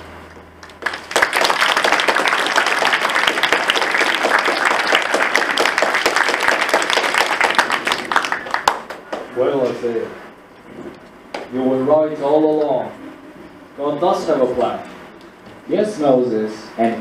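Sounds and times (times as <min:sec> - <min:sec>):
audience applauding: 0:00.6 - 0:09.3.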